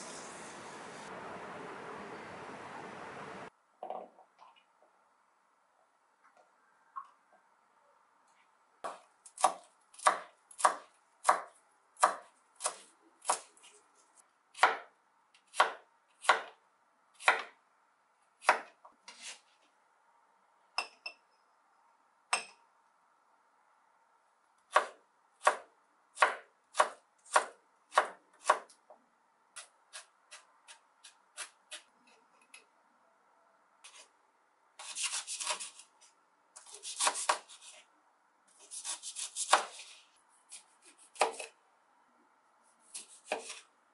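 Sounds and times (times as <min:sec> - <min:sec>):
knife chopping on wooden board: 0:08.8 - 0:13.5, 0:36.7 - 0:37.6, 0:40.9 - 0:41.5, 0:42.9 - 0:43.6.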